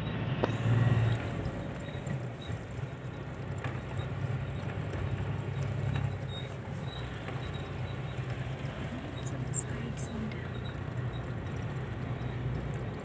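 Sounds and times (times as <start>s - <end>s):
vehicle engine and road noise: 0.0s - 13.0s.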